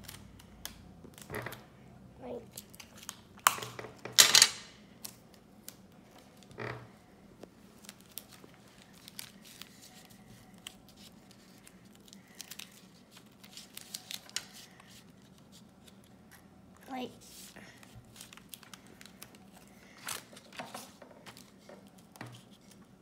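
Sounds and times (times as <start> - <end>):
paper crinkles: 7.6 - 16.3, 17.2 - 23.0.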